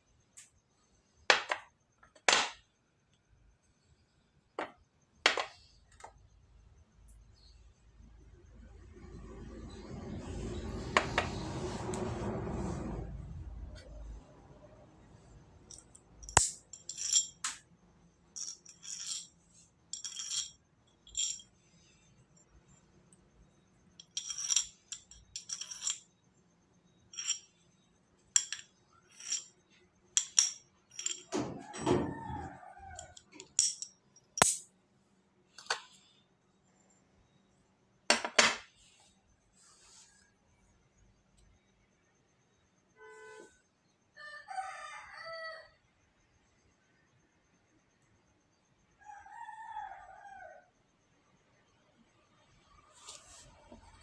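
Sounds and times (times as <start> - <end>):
coin clinking: 15.7 - 17.6, 18.4 - 21.5, 24.0 - 26.1, 27.1 - 27.5, 28.4 - 29.5, 30.2 - 31.3.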